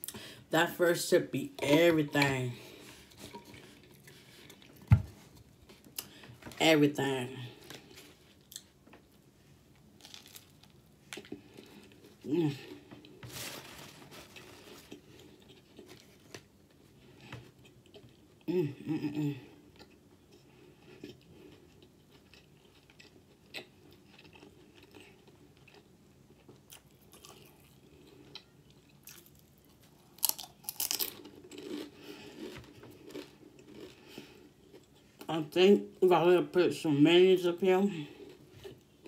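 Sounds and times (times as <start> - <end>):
chewing crunchy chips: 10.0 - 13.2, 19.5 - 35.3.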